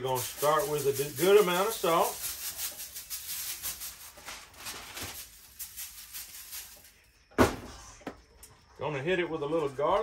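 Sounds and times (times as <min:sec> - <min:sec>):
salt shaker rattling: 0:00.0 - 0:07.1.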